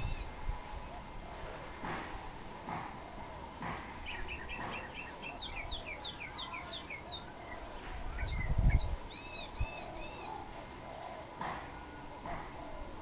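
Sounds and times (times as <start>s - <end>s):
songbirds chirping: 0.0s - 13.0s
whistled bird notes: 4.0s - 11.0s.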